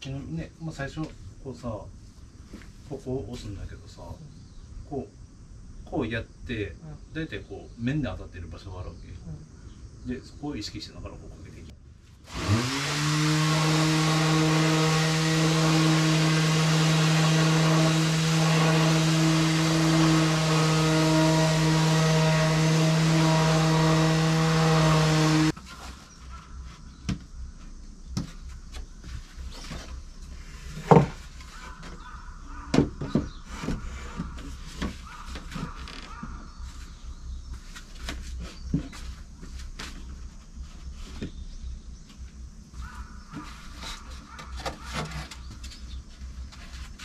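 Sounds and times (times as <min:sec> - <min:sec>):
orbital sander humming: 0:12.3 - 0:25.6
wooden boards knocking: 0:30.8 - 0:32.0, 0:32.7 - 0:36.4.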